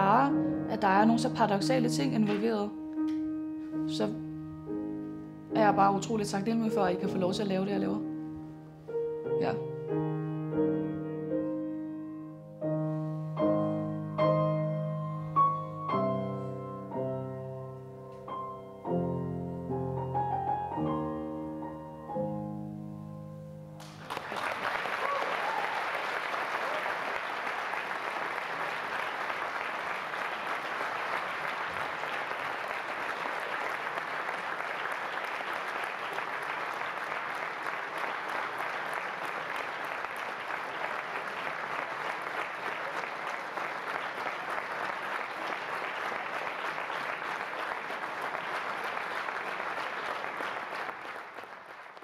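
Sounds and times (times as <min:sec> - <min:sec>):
audience applauding: 0:23.8 - 0:52.0.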